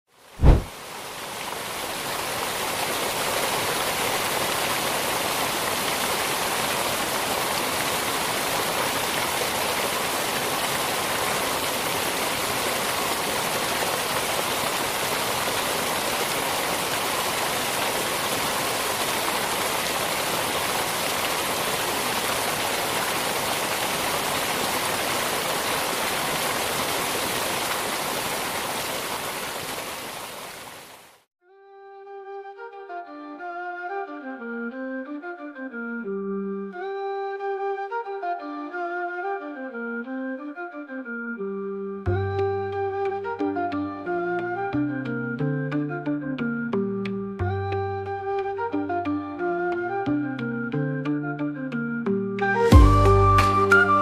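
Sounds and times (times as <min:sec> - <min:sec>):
rush of falling water: 0:00.1 - 0:31.3, 0:52.4 - 0:54.0.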